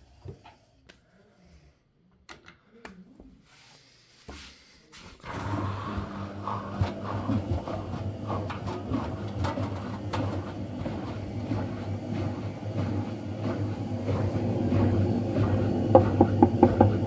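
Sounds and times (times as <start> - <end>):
washing machine motor hum: 5.2 - 17.0
washing machine drum knocking: 6.8 - 17.0.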